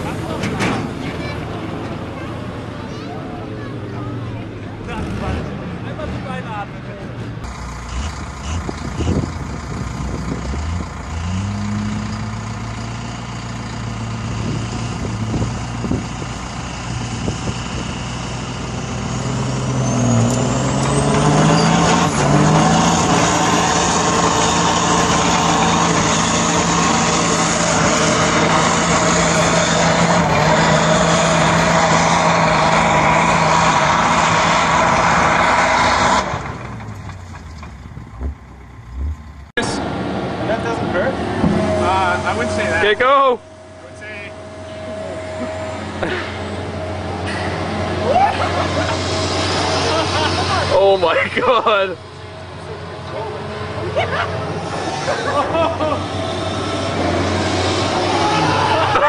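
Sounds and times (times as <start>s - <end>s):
heavy vehicle engine revving: 0.0s - 59.0s
high whine: 40.6s - 59.0s.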